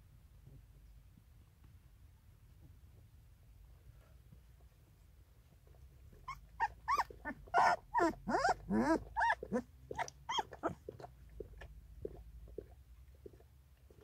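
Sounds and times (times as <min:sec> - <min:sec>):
puppy whimpering: 0:06.2 - 0:10.9
puppy whining and squealing: 0:06.2 - 0:10.9.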